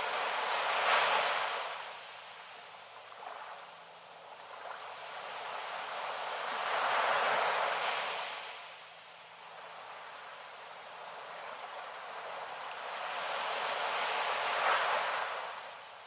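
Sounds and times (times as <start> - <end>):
small waves washing on sand: 0.0 - 16.0.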